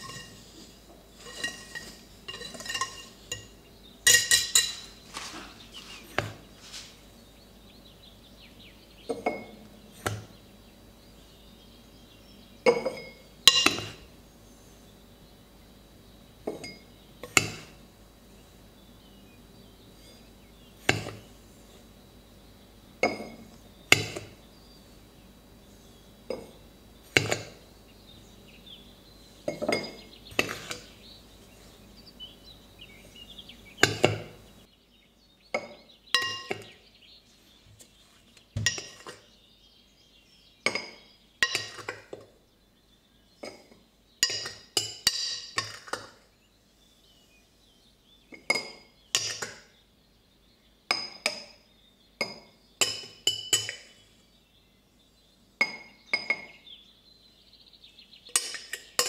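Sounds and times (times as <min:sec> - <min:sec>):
utensils and dishes clinking: 0:00.0 - 0:06.4, 0:09.1 - 0:09.6, 0:12.7 - 0:14.0, 0:16.5 - 0:17.7, 0:29.5 - 0:30.9, 0:35.6 - 0:36.8, 0:38.6 - 0:39.3, 0:40.7 - 0:42.2, 0:43.4 - 0:46.2, 0:52.2 - 0:54.0, 0:55.6 - 0:56.6, 0:58.3 - 0:59.0.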